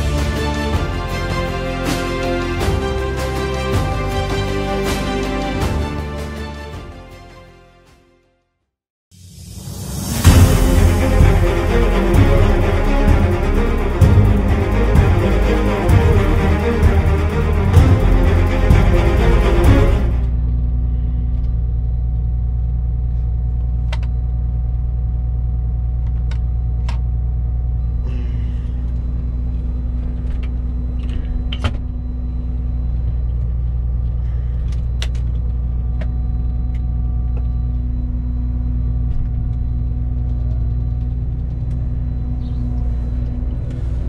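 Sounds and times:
combine harvester engine drone: 0:09.8 - 0:44.0.

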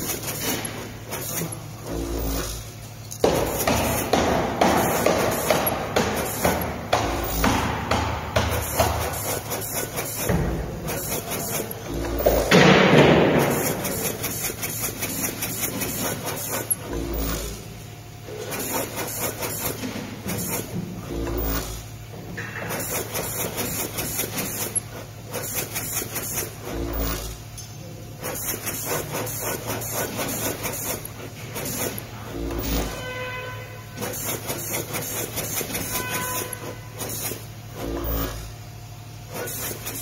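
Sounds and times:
machine ticking and clicking: 0:00.0 - 0:17.5
steady low hum: 0:00.0 - 0:40.0.

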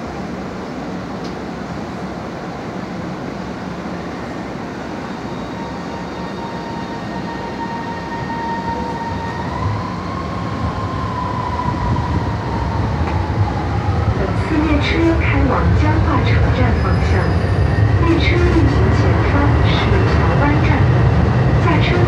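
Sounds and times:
train rumble: 0:00.0 - 0:22.0.

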